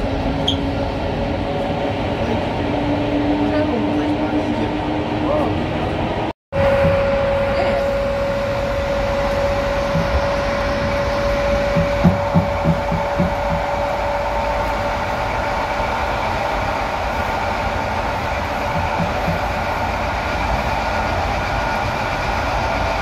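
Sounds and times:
electric locomotive rumbling: 0.0s - 23.0s
held whine: 6.6s - 23.0s.

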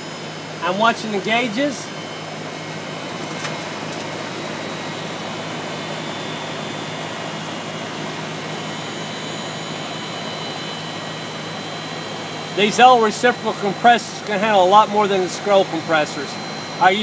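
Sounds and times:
air conditioner unit humming: 0.0s - 17.0s.

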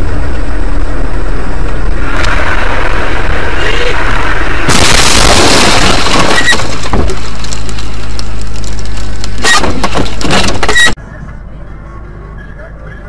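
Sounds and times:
vehicle crash crunching: 2.0s - 11.0s.

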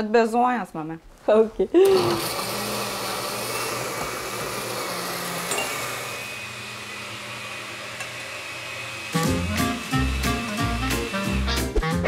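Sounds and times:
blender running: 1.8s - 11.8s
upbeat swing music: 9.2s - 12.0s.

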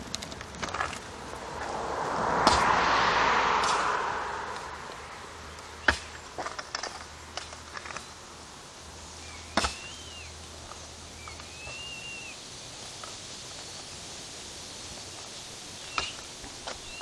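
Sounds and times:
whistled calls rising and falling: 11.2s - 12.4s.

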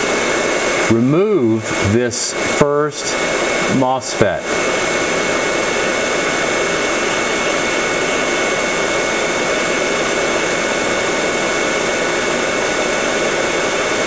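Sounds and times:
hot air station blowing with whine: 0.0s - 14.0s.

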